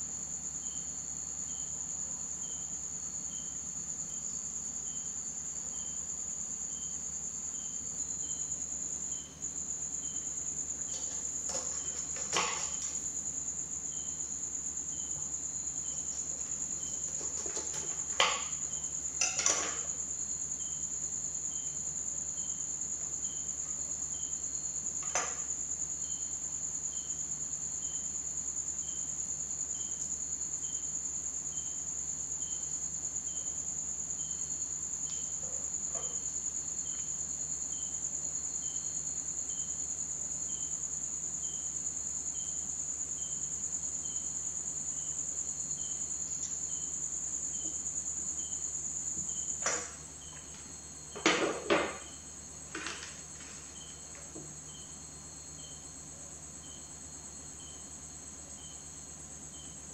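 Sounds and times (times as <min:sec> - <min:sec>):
crickets trilling: 0:00.0 - 0:59.9
knife knocks on wooden table: 0:51.2 - 0:52.1.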